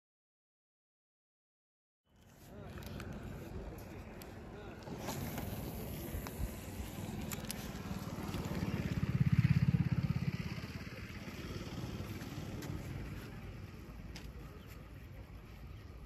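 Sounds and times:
small engine passing by: 2.6s - 14.1s.

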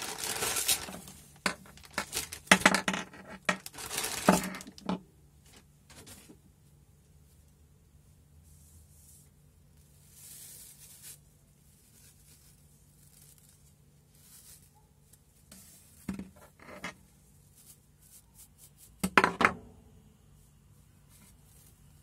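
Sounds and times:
bristles rustling: 0.0s - 2.6s, 3.4s - 4.8s, 8.4s - 19.0s, 20.3s - 22.0s
brush knocking on table: 19.0s - 19.6s.

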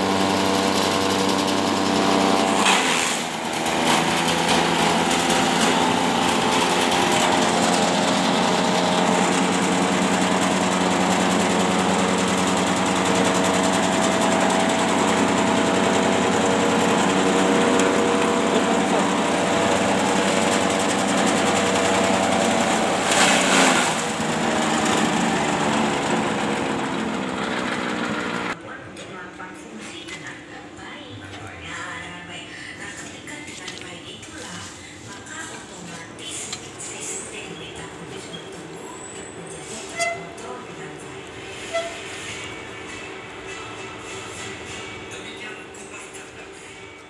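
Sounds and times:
blades chopping grass: 0.0s - 28.6s
petrol engine running: 0.0s - 28.6s.

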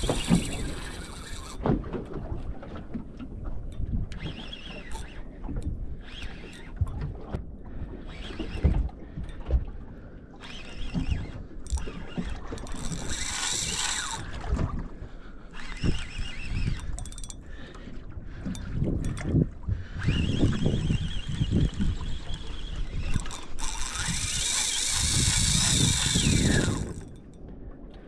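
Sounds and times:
wind on microphone: 18.2s - 27.3s.

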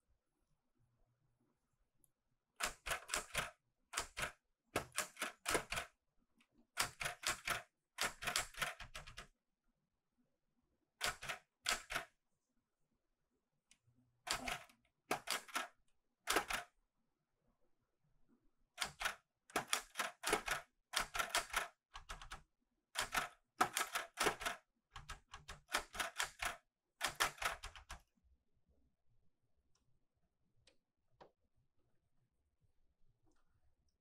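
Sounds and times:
manual typewriter keys clacking: 6.8s - 9.2s, 18.8s - 22.4s, 23.0s - 28.0s.

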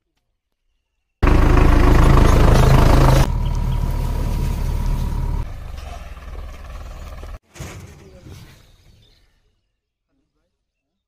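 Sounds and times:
tractor diesel engine running: 1.2s - 7.4s.

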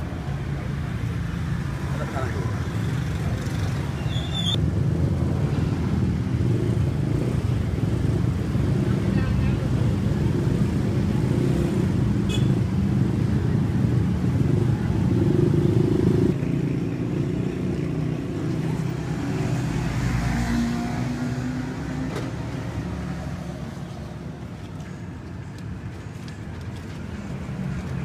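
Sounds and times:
vehicles passing: 0.0s - 28.0s.

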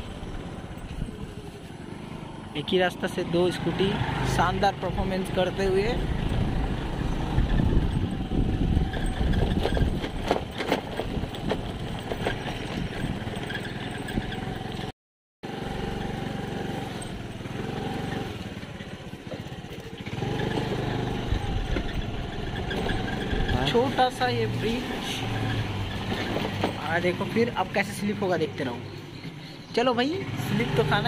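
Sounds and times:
scooter engine running: 0.0s - 31.0s
knocks and rattles from bumps: 8.7s - 14.9s, 19.3s - 24.3s, 25.3s - 27.5s.

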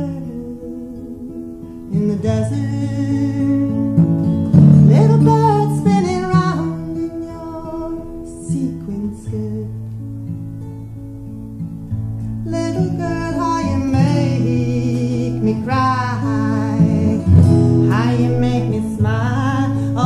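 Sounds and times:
strummed acoustic guitar: 0.0s - 20.0s
woman singing: 12.5s - 20.0s.

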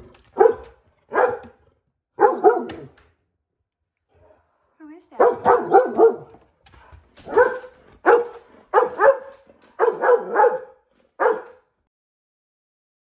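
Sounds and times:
dog barking: 0.3s - 1.6s, 2.2s - 2.9s, 5.2s - 6.4s, 7.2s - 11.7s.

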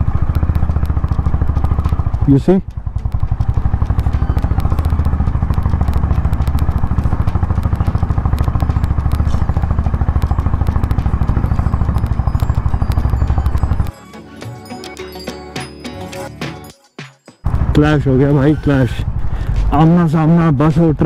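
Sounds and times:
motorcycle engine thumping: 0.0s - 13.9s.

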